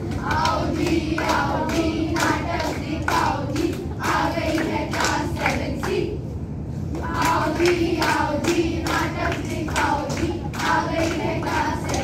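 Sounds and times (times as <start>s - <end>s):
hands clapping to a beat: 0.0s - 6.0s, 6.9s - 12.0s
children singing in unison: 7.0s - 12.0s.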